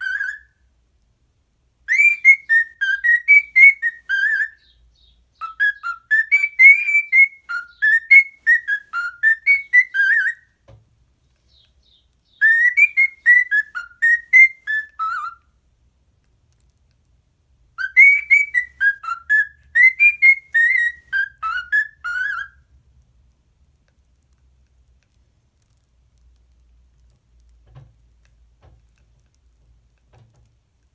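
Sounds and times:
cockatiel whistling: 0.0s - 0.5s, 1.9s - 10.5s, 12.3s - 15.5s, 17.8s - 22.6s.

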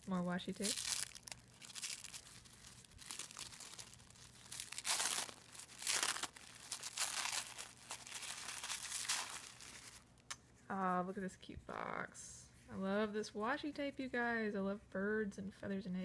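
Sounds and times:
tissue paper crinkling: 0.0s - 10.2s.

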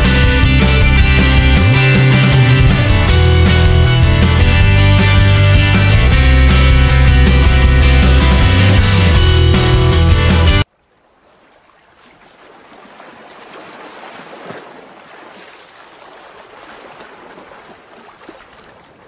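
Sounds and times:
rock music: 0.0s - 10.7s
waves rushing: 11.2s - 19.0s.

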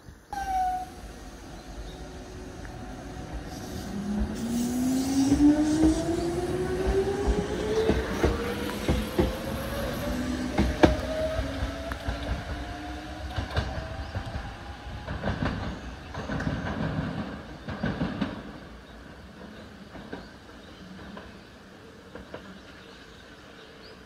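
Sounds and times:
train wheels clacking: 3.5s - 18.6s.

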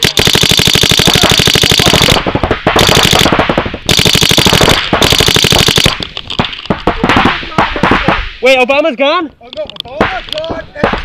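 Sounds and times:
paintball marker firing: 0.0s - 8.3s.

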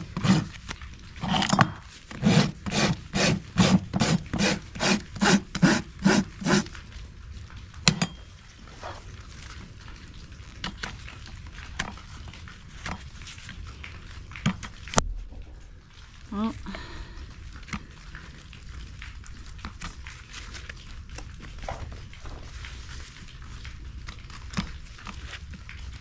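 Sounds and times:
rasp filing a hoof: 0.1s - 0.5s, 2.2s - 6.7s.

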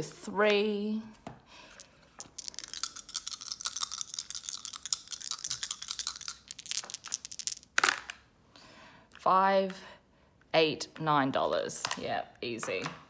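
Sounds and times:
dice clacking down: 1.7s - 8.2s
dice rattling: 1.7s - 8.2s.

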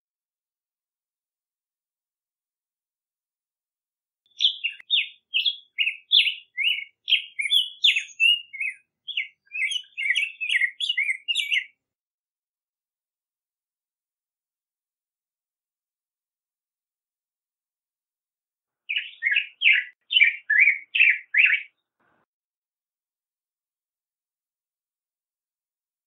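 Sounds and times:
bird singing warbled phrase: 4.3s - 11.8s, 18.9s - 21.8s.

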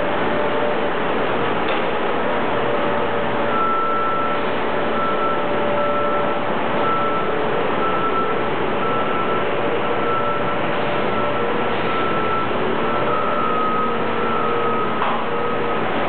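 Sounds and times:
backup alarm beeping: 3.5s - 15.6s.

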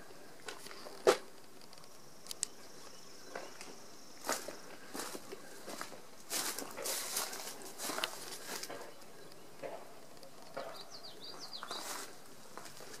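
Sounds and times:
footsteps on straw and dirt: 3.3s - 10.0s, 10.6s - 13.0s.

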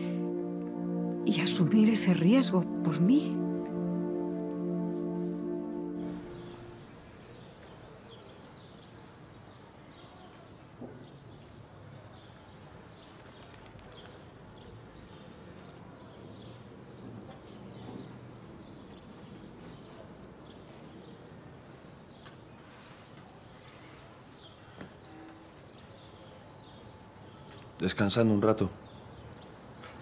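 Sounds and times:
low steady background: 0.0s - 7.4s.

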